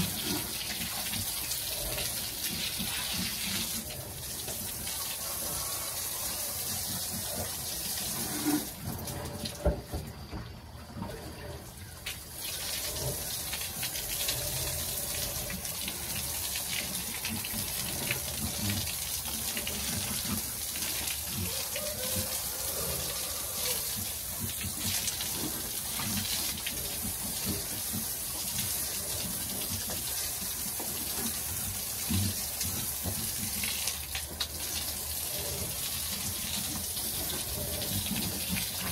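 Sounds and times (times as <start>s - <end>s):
hose spraying water on concrete: 0.0s - 9.8s, 12.0s - 38.9s.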